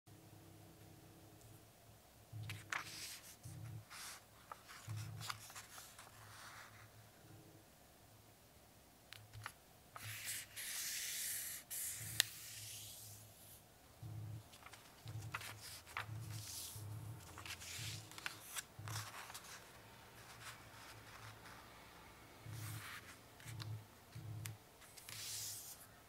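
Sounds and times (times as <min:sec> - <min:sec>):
paper rustling and sliding: 0:02.5 - 0:06.9, 0:09.4 - 0:13.2, 0:14.5 - 0:21.6, 0:24.8 - 0:25.9
fingers rubbing paper: 0:14.5 - 0:21.6.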